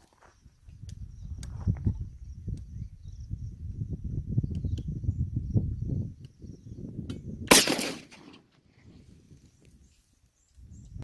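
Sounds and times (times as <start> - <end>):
wind buffeting microphone: 0.5 - 9.9, 10.6 - 11.0.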